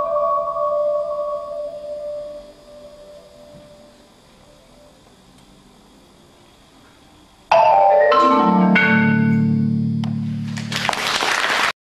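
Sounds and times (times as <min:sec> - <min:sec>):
people clapping: 0:10.0 - 0:11.8.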